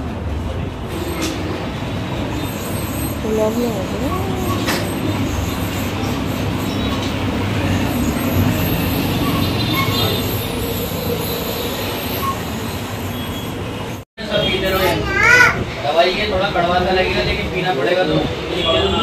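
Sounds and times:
vehicle road noise: 0:00.0 - 0:19.0
faint high squeals: 0:07.7 - 0:13.7.

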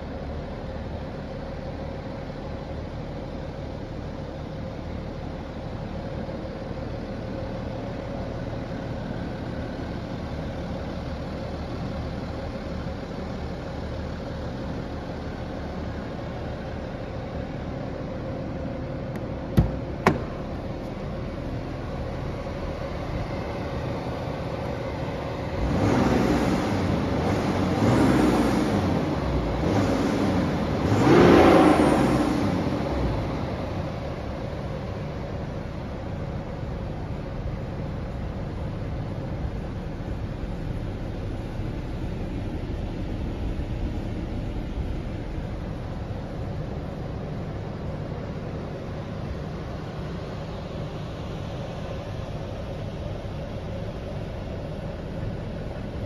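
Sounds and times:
diesel engine idling and revving: 0:00.0 - 0:56.0.

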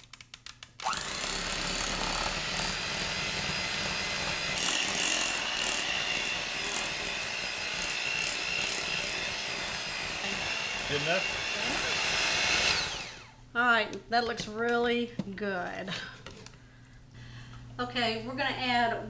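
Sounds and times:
electric hand mixer whining: 0:00.8 - 0:13.4.

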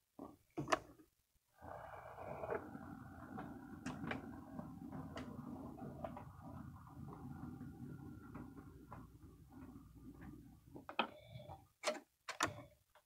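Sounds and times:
model train motor whir: 0:01.6 - 0:08.1.

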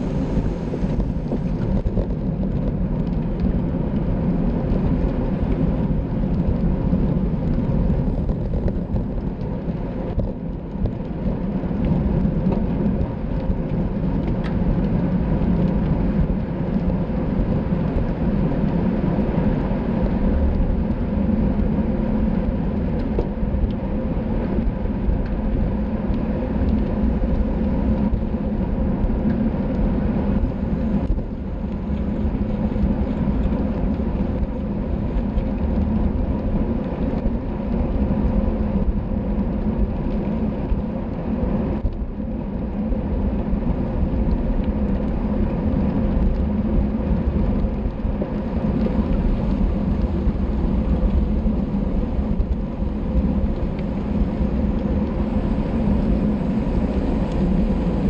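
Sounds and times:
tyre and road noise: 0:00.0 - 0:58.0
wind on microphone: 0:00.0 - 0:58.0.

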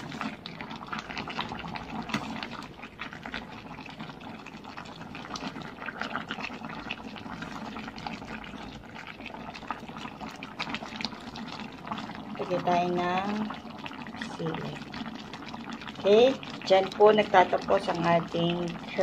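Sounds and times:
ladle stirring sloshing liquid: 0:00.0 - 0:12.4
curry bubbling and popping: 0:00.0 - 0:19.0.

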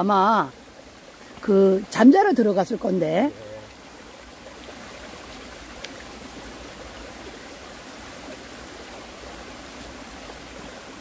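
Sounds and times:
stream running over rocks: 0:00.0 - 0:11.0
faint click: 0:05.8 - 0:06.0.

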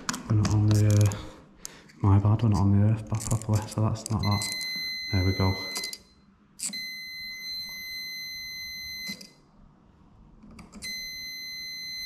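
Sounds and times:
high continuity beep: 0:04.2 - 0:09.3, 0:10.8 - 0:12.0.

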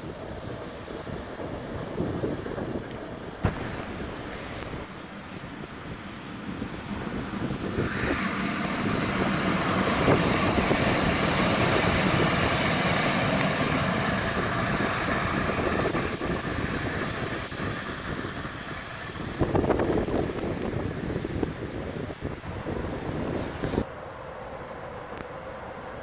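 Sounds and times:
locomotive wheels rumbling on rails: 0:00.0 - 0:23.8
high wheel squeal: 0:07.4 - 0:23.8.

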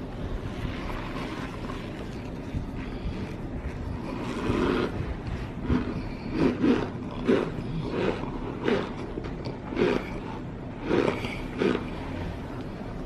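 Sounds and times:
cornstarch squeaky crunching: 0:05.6 - 0:12.2.

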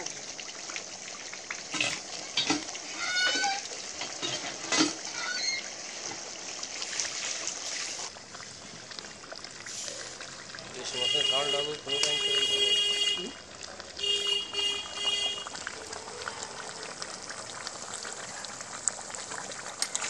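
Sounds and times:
curry sizzling and bubbling: 0:00.0 - 0:20.0
metal ladle scraping a pan: 0:01.7 - 0:05.6.

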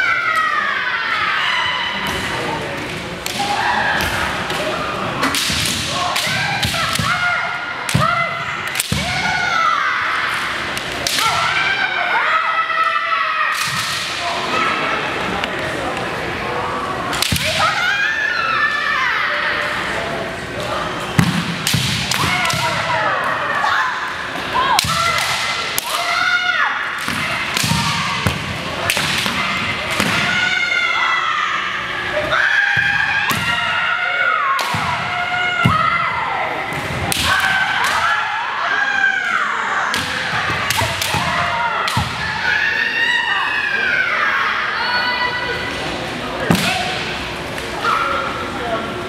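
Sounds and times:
people shouting: 0:03.3 - 0:15.0, 0:21.3 - 0:45.7.

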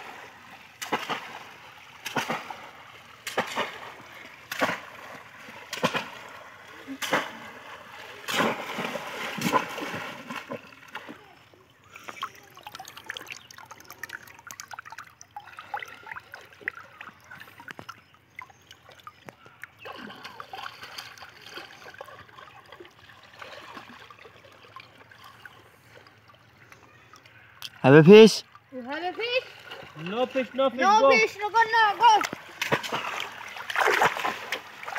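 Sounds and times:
shallow water splashing: 0:00.0 - 0:34.9
water trickling: 0:00.0 - 0:34.9.

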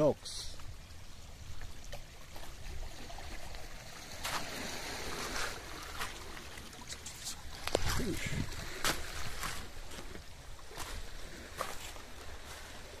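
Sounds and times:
sea surf on rocky shore: 0:01.4 - 0:13.0
wind rumble on microphone: 0:07.1 - 0:13.0.

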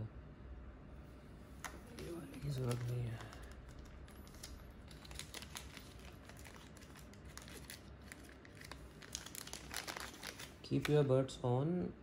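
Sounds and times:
plastic bags crinkling: 0:01.6 - 0:11.0.

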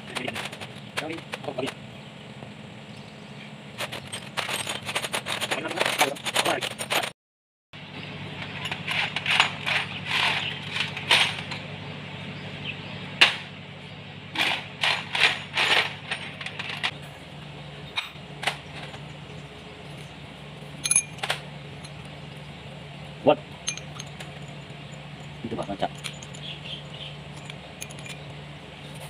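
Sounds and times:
steady low hum: 0:07.8 - 0:29.0
metallic clinks of tools and parts: 0:20.8 - 0:22.1, 0:23.6 - 0:28.4.

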